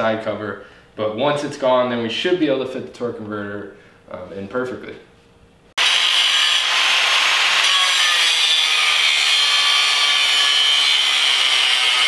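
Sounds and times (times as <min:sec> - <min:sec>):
angle grinder grinding metal: 0:05.8 - 0:12.0.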